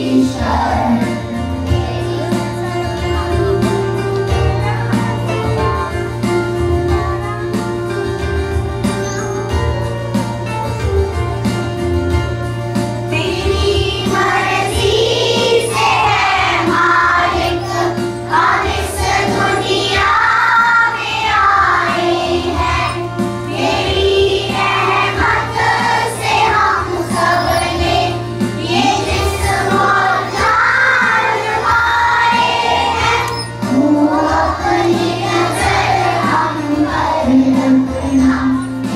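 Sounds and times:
children singing in unison: 0.0 - 2.6, 13.1 - 38.9
instrumental accompaniment: 0.0 - 38.9.

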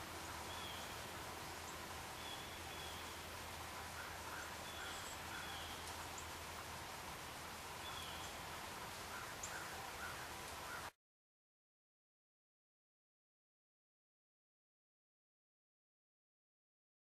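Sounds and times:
steady outdoor hiss: 0.0 - 11.0
faint bird chirps: 0.2 - 6.4, 9.1 - 10.9.

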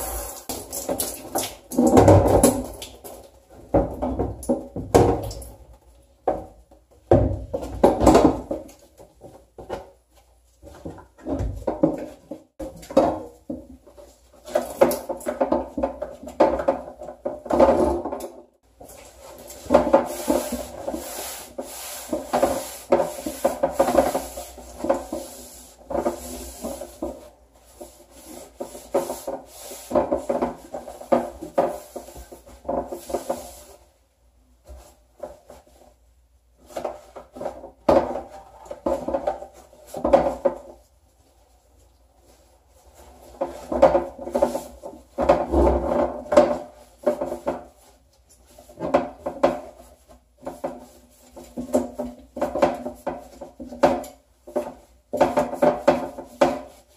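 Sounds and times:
paper towel scrubbing a bench: 19.1 - 33.9.

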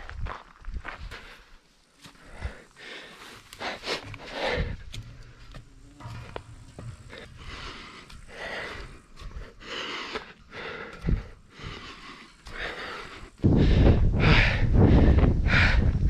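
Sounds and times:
person breathing hard: 0.9 - 16.0
low rumble on microphone: 3.6 - 16.0.

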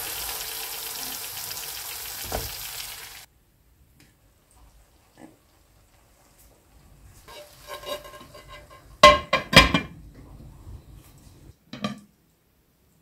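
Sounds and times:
platter knocking against pot: 9.0 - 10.0.

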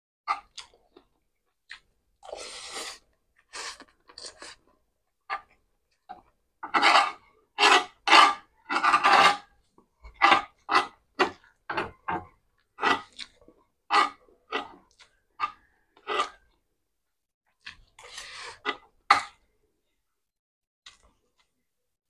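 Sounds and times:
metal spoon scraping pan: 6.6 - 13.1, 13.9 - 14.8.

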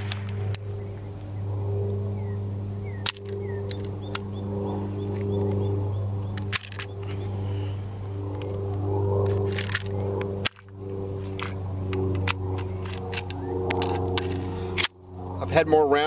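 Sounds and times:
pistol shots: 0.0 - 0.7
steady low hum: 0.0 - 16.0
small birds chirping: 2.1 - 7.9.

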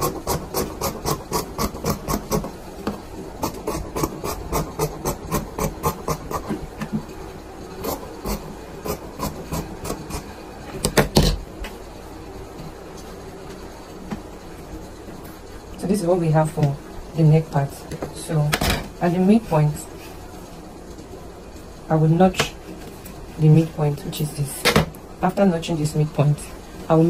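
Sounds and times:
scissors snipping fabric: 0.0 - 2.5.

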